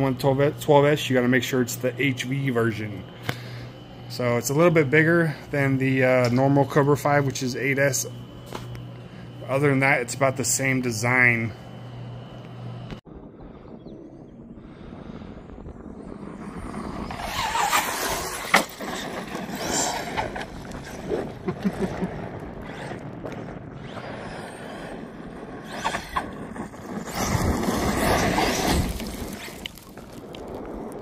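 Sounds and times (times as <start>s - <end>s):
electric rc truck driving on dirt: 15.7s - 31.0s.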